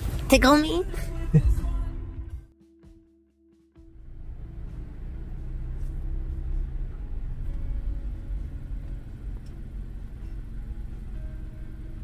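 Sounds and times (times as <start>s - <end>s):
car rumbling on the move: 3.8s - 12.0s.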